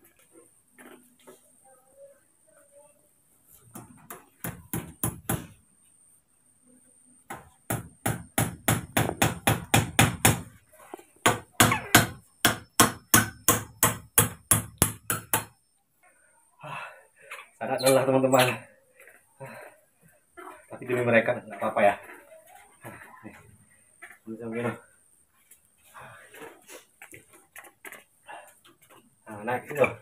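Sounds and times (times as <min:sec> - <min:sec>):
hammer driving nails into wood: 0:07.3 - 0:10.5, 0:11.2 - 0:15.6.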